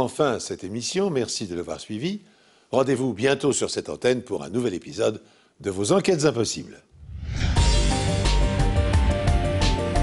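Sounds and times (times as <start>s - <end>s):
theme music with low beat: 7.2s - 10.0s.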